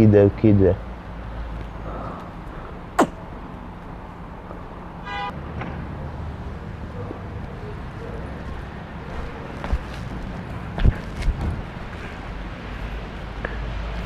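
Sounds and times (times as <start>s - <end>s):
street traffic rumbling: 0.0s - 14.0s
vehicle horn toot: 5.0s - 5.3s.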